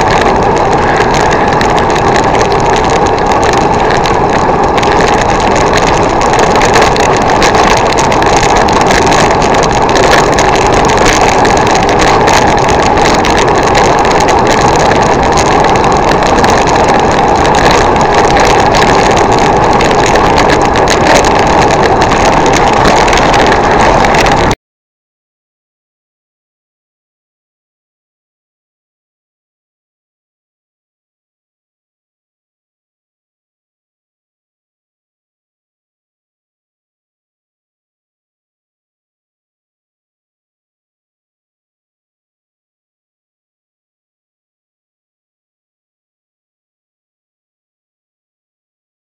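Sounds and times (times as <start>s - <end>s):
wind rushing over microphone: 0.0s - 24.6s.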